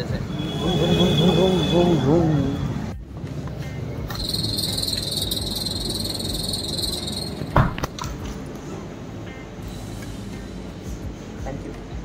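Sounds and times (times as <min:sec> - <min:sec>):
high-pitched trill: 0:04.1 - 0:07.6.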